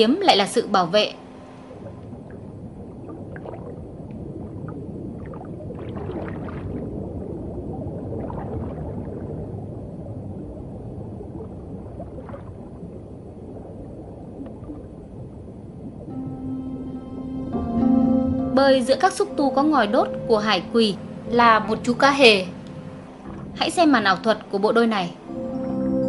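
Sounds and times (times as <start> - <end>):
underwater rumbling wash: 0.0 - 26.0
soft gurgles and clicks: 1.3 - 16.1, 18.6 - 26.0.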